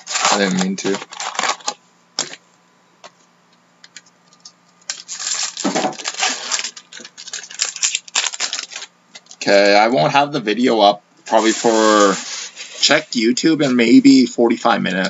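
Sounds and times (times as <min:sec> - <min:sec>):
foil wrapper crinkling: 0:00.0 - 0:02.4, 0:03.9 - 0:09.6, 0:11.4 - 0:13.0.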